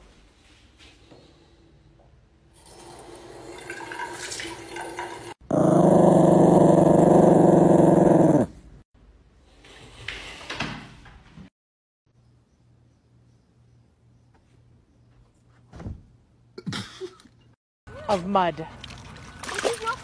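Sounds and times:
small dog growling: 5.5s - 8.6s.

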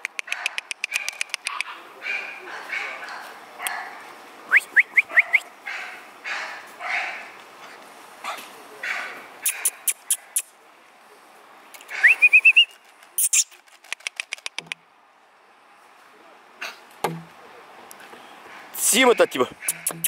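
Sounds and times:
mouth clicks: 0.0s - 1.8s, 9.4s - 10.5s, 11.7s - 14.8s, 19.5s - 20.0s.

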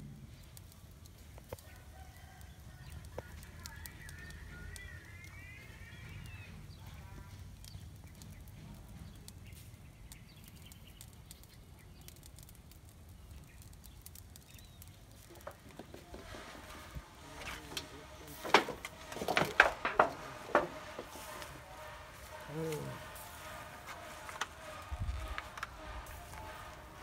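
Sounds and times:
low outdoor rumble: 0.0s - 27.0s.

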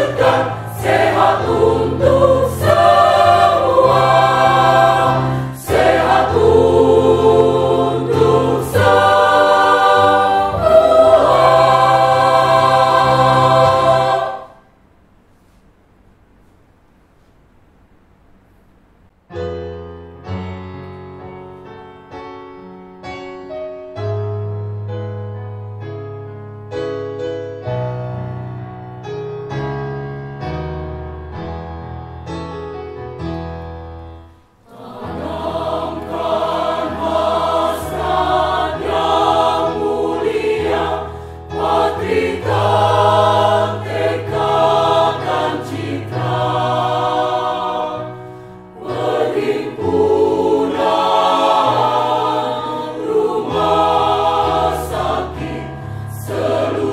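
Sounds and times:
choir singing a hymn: 0.0s - 14.7s, 34.6s - 56.9s
piano chords: 0.0s - 14.8s, 19.3s - 56.9s.

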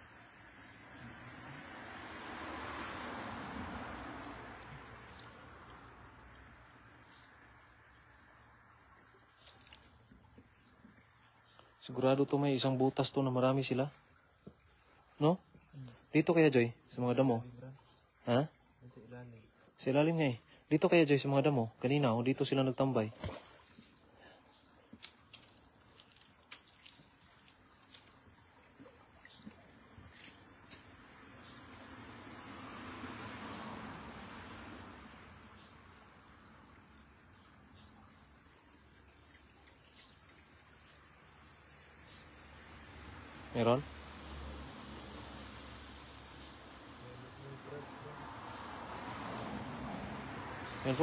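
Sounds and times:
night insects chirring: 0.0s - 51.0s
light water splashes: 8.9s - 11.9s, 22.6s - 51.0s.

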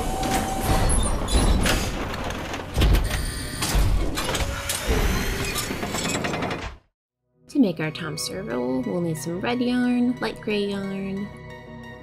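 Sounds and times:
sliding doors whooshing and clanking: 0.0s - 6.8s.

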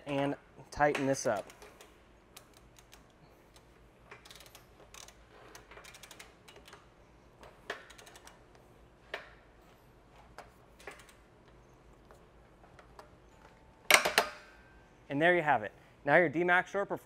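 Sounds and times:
ratchet pawl clicking: 1.4s - 8.6s.

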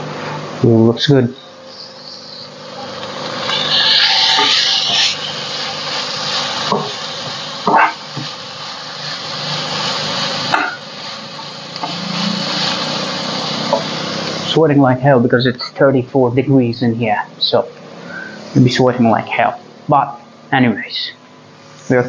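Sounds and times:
vegetables sizzling in oil: 1.7s - 14.5s.

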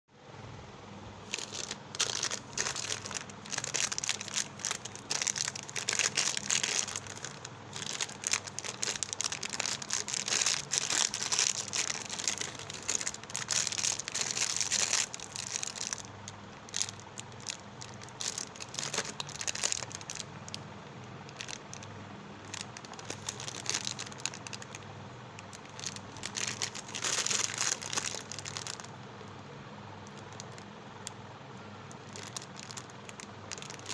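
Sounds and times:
faint low hum: 0.2s - 33.9s
plastic wrappers crinkling: 1.3s - 20.6s, 21.3s - 21.9s, 22.5s - 24.8s, 25.4s - 28.9s, 30.1s - 30.6s, 31.9s - 33.9s.

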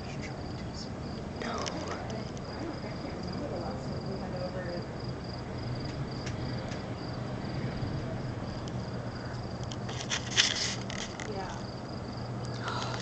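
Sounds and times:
clicks and rustling: 9.6s - 11.6s.

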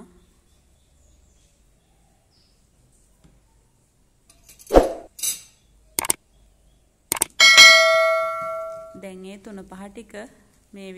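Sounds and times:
quick clicks: 6.0s - 6.2s, 7.1s - 7.4s.

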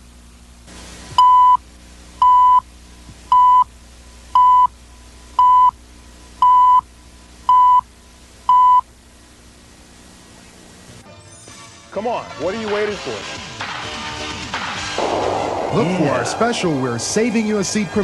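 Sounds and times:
short tone beeps: 1.2s - 1.6s, 2.2s - 2.6s, 3.3s - 3.7s, 4.4s - 4.7s, 5.4s - 5.7s, 6.4s - 6.8s, 7.5s - 7.8s, 8.5s - 8.8s.

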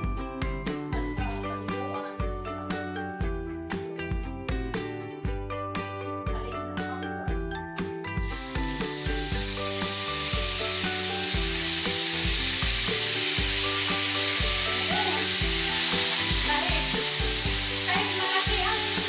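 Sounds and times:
oil sizzling in a frying pan: 8.1s - 19.0s.

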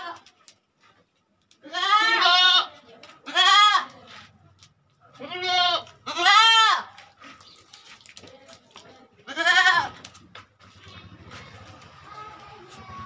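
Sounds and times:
goats bleating: 1.6s - 4.0s, 5.2s - 7.0s, 9.2s - 10.1s.

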